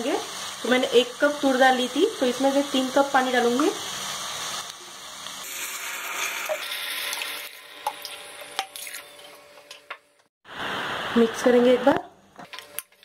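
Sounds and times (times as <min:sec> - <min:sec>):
water hissing on hot pan: 0:00.0 - 0:09.0, 0:10.5 - 0:11.7.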